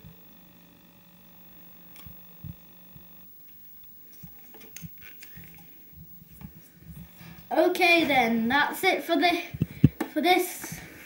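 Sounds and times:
faint steady hum: 0.0 - 11.0
small clicks and rustles: 1.9 - 7.1.

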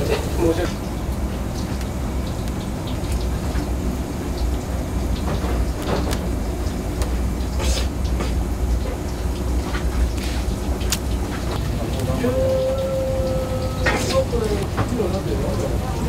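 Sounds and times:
low rumble of machinery: 0.0 - 16.0
faint wet ticks and taps: 1.6 - 3.6.

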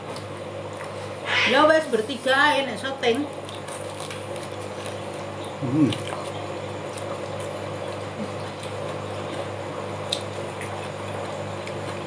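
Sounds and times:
low room hum: 0.0 - 12.0
person humming briefly: 5.6 - 6.0.

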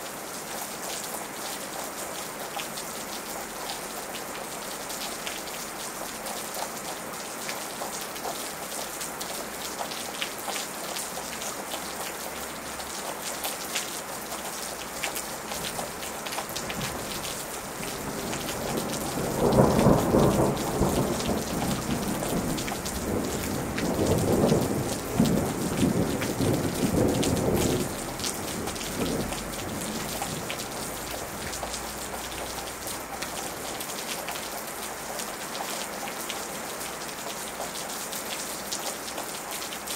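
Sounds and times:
steady rain falling: 0.0 - 39.9
thunder rumbling: 16.6 - 32.5.

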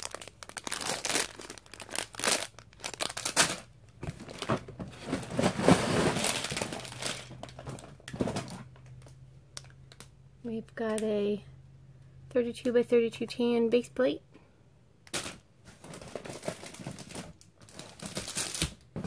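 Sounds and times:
plastic bags crinkling: 0.0 - 10.0, 15.2 - 19.0.

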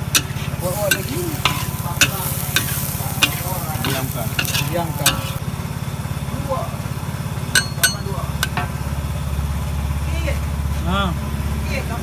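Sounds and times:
food sizzling loudly: 0.0 - 5.4
metal spatula scraping a wok: 0.0 - 5.4
low engine-like hum: 0.0 - 12.0.

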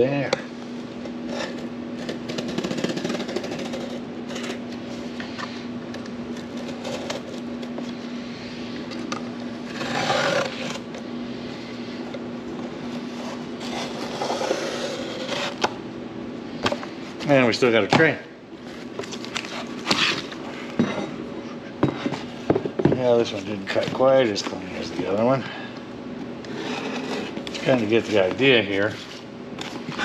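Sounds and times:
steady low hum: 0.0 - 30.0
knife cutting cardboard: 9.7 - 10.9, 13.0 - 15.7.

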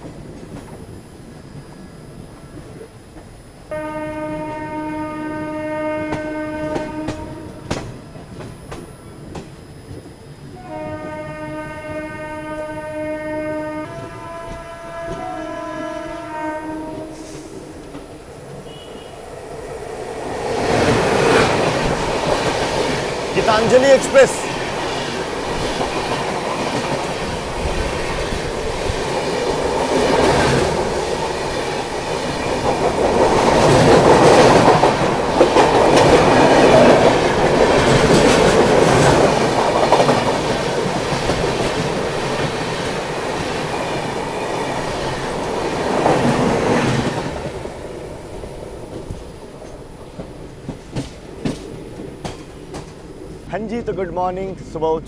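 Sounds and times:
train coaches rushing past: 0.0 - 55.0
train wheel clicks: 6.1 - 10.0, 48.2 - 53.1.

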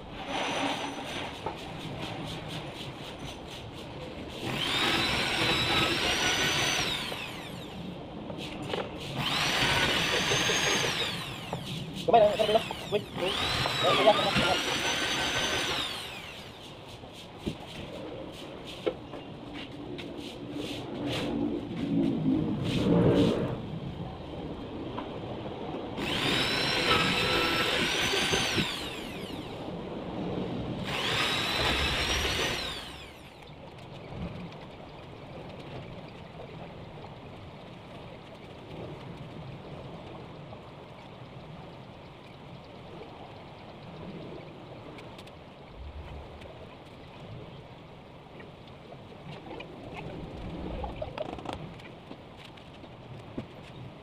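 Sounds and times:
electric drill drilling into wood: 4.4 - 7.8, 9.2 - 11.7, 12.3 - 16.6, 26.0 - 29.6, 30.8 - 33.4.

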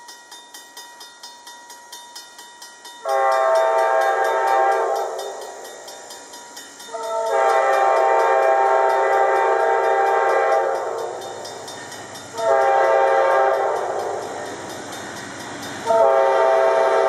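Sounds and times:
crossing bell dinging: 0.0 - 17.0
train air horn: 3.0 - 5.6, 6.9 - 11.2, 12.3 - 14.2, 15.8 - 17.0.

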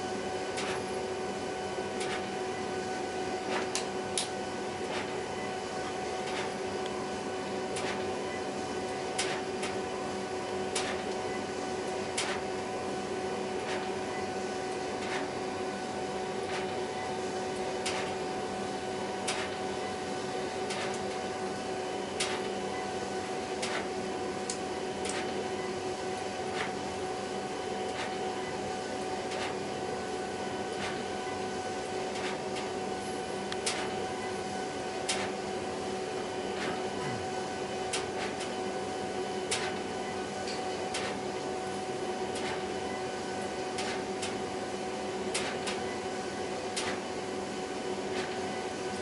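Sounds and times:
printer mechanical hum: 0.0 - 49.0
printer sharp click: 9.2 - 9.8, 12.2 - 12.4, 17.8 - 18.2, 19.2 - 19.6, 22.2 - 22.4, 33.6 - 33.9, 35.0 - 35.3, 39.5 - 39.8, 40.5 - 41.2, 42.4 - 42.6, 45.3 - 45.8, 46.8 - 47.0.

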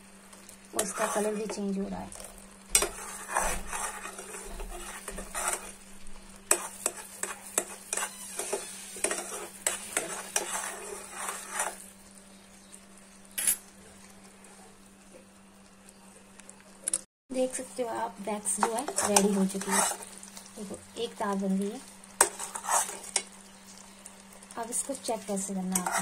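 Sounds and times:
spoon scraping metal pot: 0.8 - 1.5, 2.8 - 5.8, 6.5 - 11.8, 18.6 - 20.0, 22.2 - 23.2, 25.7 - 26.0.

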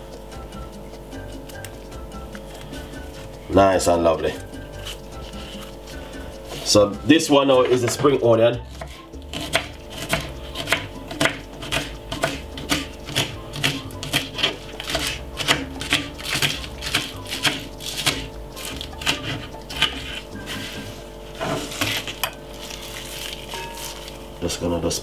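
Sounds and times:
knife chopping on wooden board: 7.6 - 20.2, 20.8 - 22.3.

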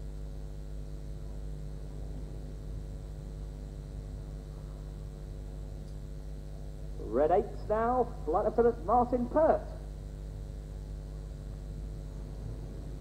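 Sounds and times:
distant jet engines droning: 4.1 - 13.0.

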